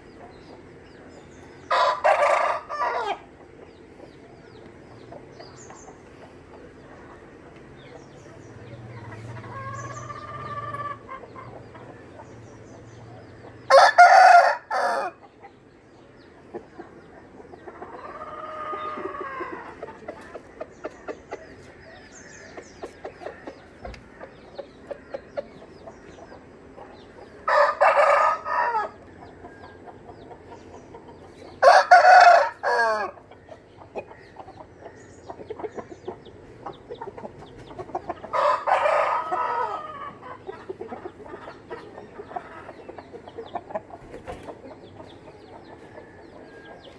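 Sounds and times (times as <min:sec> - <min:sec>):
chickens clucking: 0:00.0 - 0:46.9
roosters crowing: 0:01.6 - 0:03.4, 0:08.6 - 0:11.7, 0:13.6 - 0:15.2, 0:17.8 - 0:19.9, 0:27.2 - 0:30.6, 0:31.3 - 0:33.3, 0:37.6 - 0:43.3, 0:45.3 - 0:46.9.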